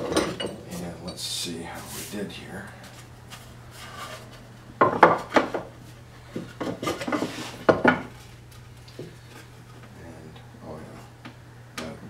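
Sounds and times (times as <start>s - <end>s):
wood scraping on wood: 1.7s - 9.8s.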